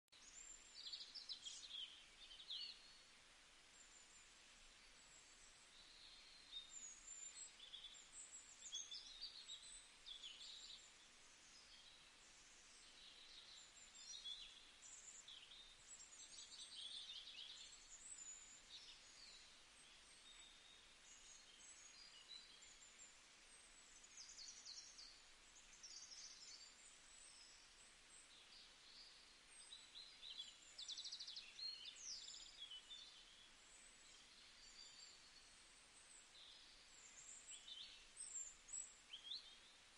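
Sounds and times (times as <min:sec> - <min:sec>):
low steady hiss: 0:00.1 - 0:39.9
small birds chirping and trilling: 0:00.1 - 0:39.9.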